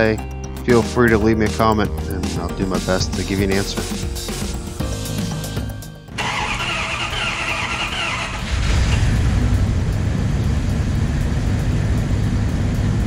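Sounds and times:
engine starter cranking: 6.2 - 9.4
engine rumbling idle: 6.2 - 13.0.

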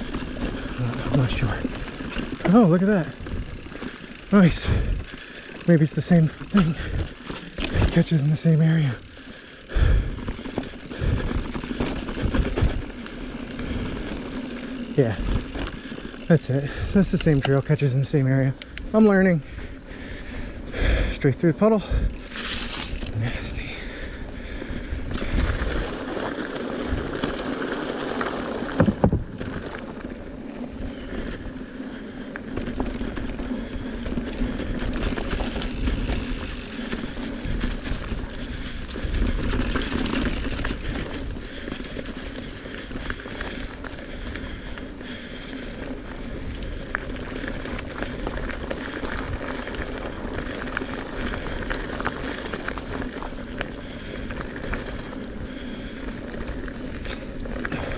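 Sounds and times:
bike rattling: 0.0 - 57.9
bike tyres rolling on dirt: 0.0 - 57.9.

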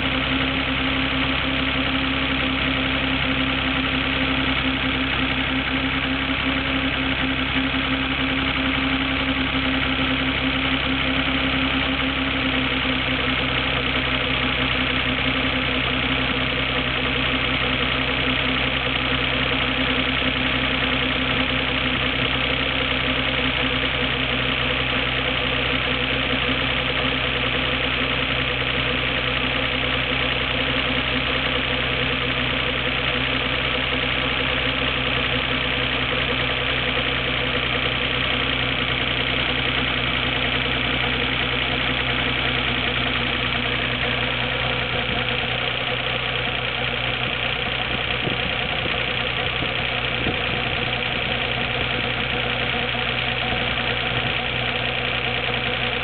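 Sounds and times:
car engine idling with rumbling: 0.0 - 56.0.

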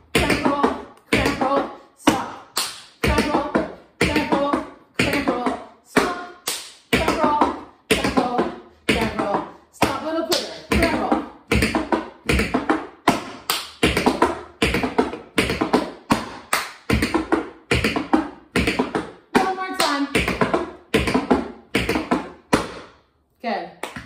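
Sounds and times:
tap shoes striking floor: 6.9 - 22.9.

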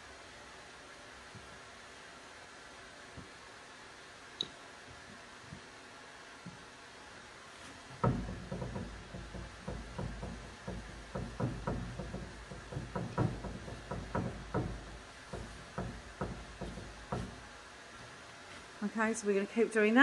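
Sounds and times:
paintbrush dabbing knocks: 7.9 - 17.4.

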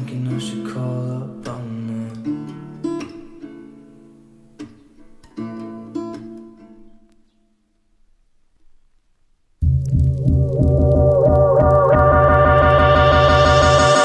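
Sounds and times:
strummed acoustic guitar music: 0.0 - 7.6.

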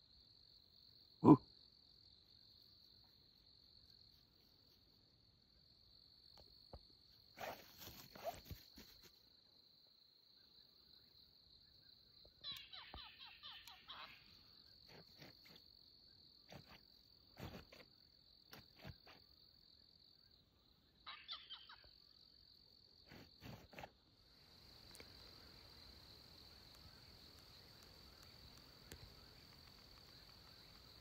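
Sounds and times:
quick falling chirps: 7.4 - 9.1
insect high-pitched trill: 11.6 - 16.9, 21.0 - 23.4.

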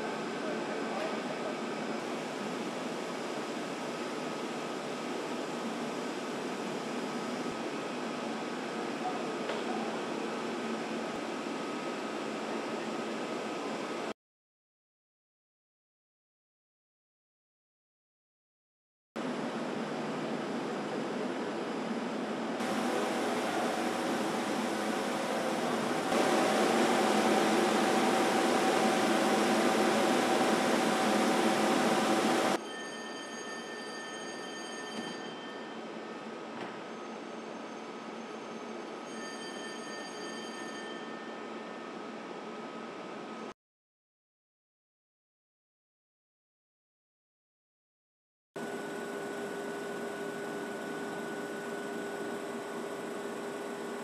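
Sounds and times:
factory machinery hum: 0.0 - 14.1, 19.2 - 32.6, 48.6 - 54.0
faint steady whine: 20.5 - 32.6
machine rollers rushing: 22.6 - 32.6.

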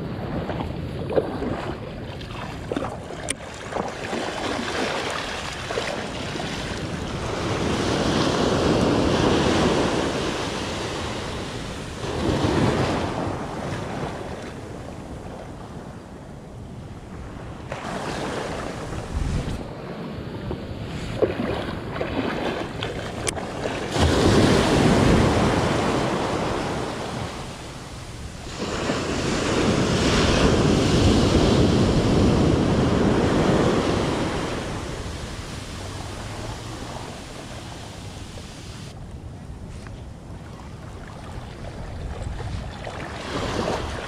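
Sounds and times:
wind on microphone: 0.0 - 44.0
ocean surf washing in: 4.2 - 15.2, 23.5 - 39.0.

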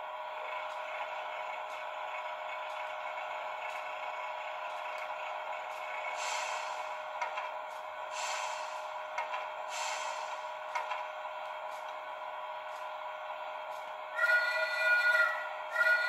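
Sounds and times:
hiss of released air: 6.1 - 7.0, 8.1 - 9.0, 9.6 - 10.6.

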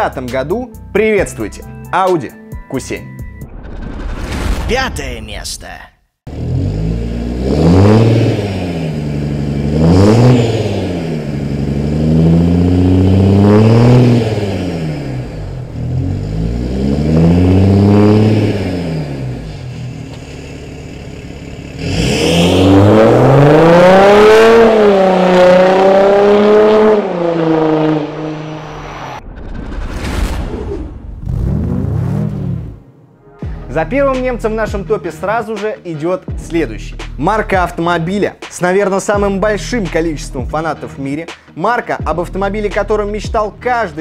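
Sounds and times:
car accelerating hard: 6.3 - 29.2, 31.2 - 32.8
diesel car engine revving: 6.3 - 29.2, 31.2 - 32.9.

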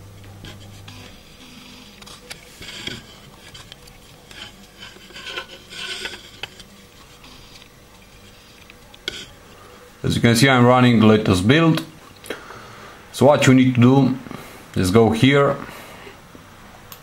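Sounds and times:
handling rubbing and scraping: 0.0 - 11.3
low steady hum: 0.0 - 17.0.

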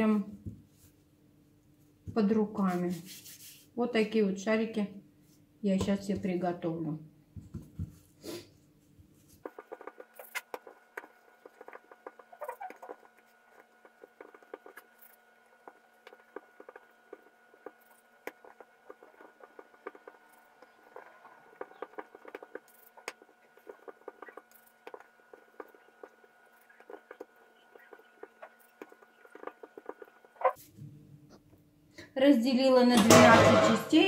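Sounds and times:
dough crackling under hands: 9.0 - 30.7.

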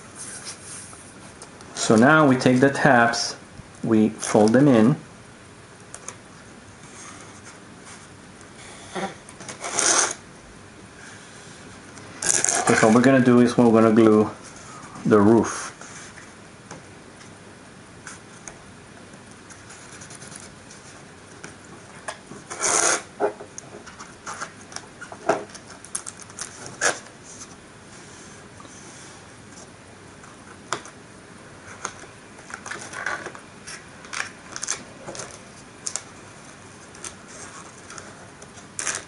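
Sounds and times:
paper rustling: 12.2 - 16.3, 31.6 - 39.0.

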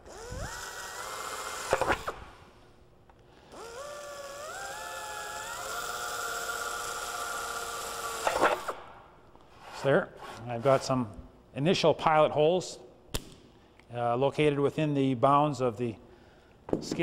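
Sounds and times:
pneumatic drill whine: 0.0 - 2.5, 3.4 - 8.8.

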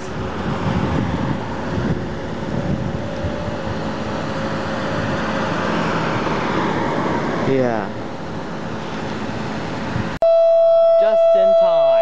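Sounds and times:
distant fire siren: 10.2 - 12.0.

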